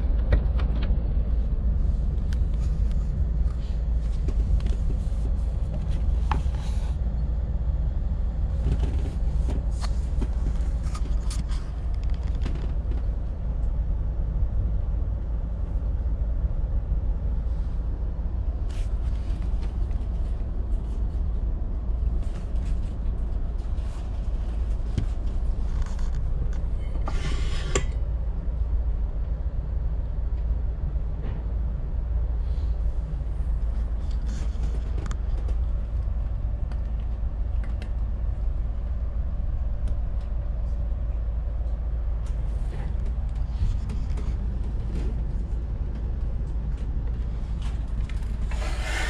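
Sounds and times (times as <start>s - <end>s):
train rumbling inside carriage: 0.0s - 49.0s
creaks and rattles: 8.4s - 13.8s, 18.4s - 28.2s, 33.1s - 49.0s.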